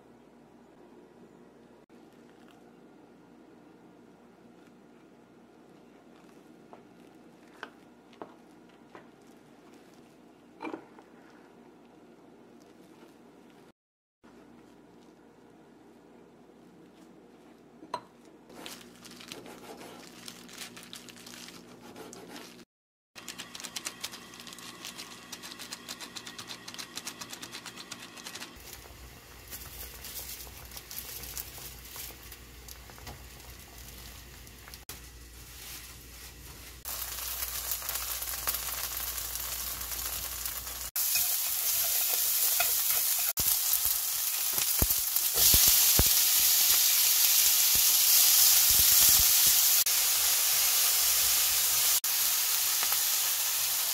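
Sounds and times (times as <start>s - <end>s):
onion and bacon sizzling: 23.2s - 53.9s
water boiling in a pan: 28.4s - 53.9s.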